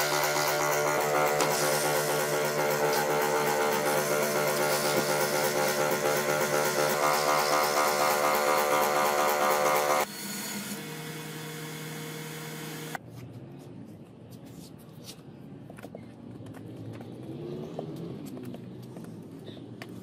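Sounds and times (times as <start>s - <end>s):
scroll saw motor humming: 0.0s - 13.0s.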